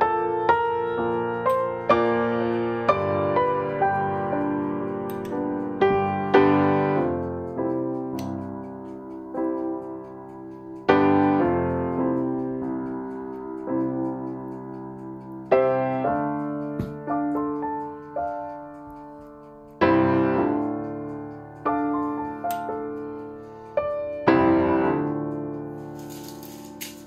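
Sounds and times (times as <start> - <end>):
slow solo piano: 0.0 - 27.0.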